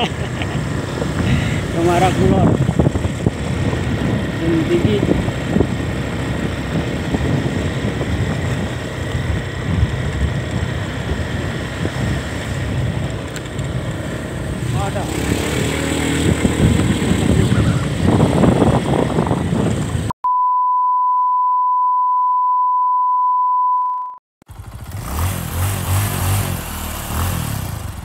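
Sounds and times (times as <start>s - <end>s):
vehicle engine: 0.0s - 20.1s, 24.5s - 28.0s
wind noise: 0.0s - 20.1s
steady beep tone: 20.2s - 24.2s.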